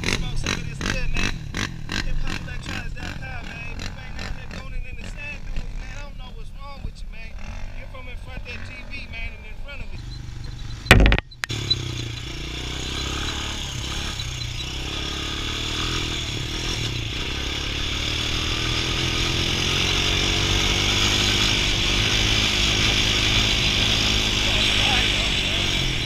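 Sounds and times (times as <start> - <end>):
quad bike engine running: 0.0 - 26.0
loud knock: 10.9 - 11.3.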